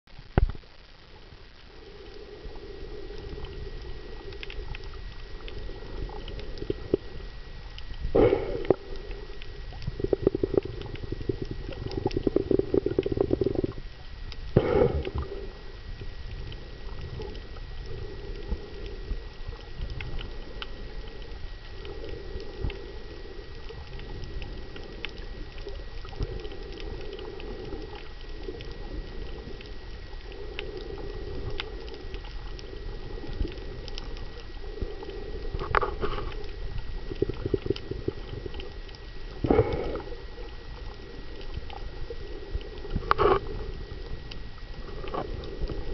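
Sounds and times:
gurgling exhaled bubbles: 0:01.1 - 0:45.9
diver breathing through regulator: 0:08.1 - 0:13.8, 0:14.6 - 0:15.9, 0:39.3 - 0:45.9.

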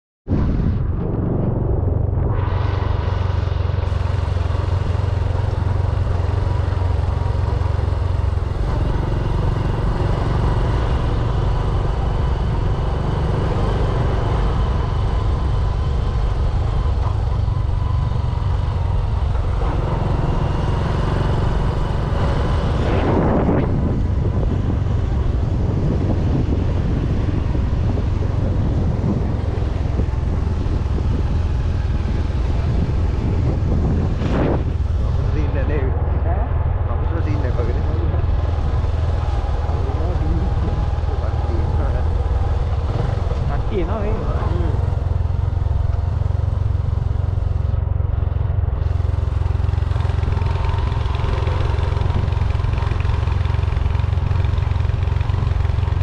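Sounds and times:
wind rumble on microphone: 0:00.2 - 0:56.0
motorbike engine and road noise: 0:00.3 - 0:56.0.

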